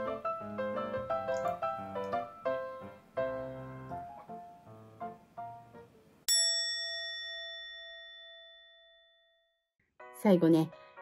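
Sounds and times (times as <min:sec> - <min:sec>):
soft piano music: 0:00.0 - 0:06.2, 0:10.0 - 0:11.0
bright bell chime: 0:06.3 - 0:09.5.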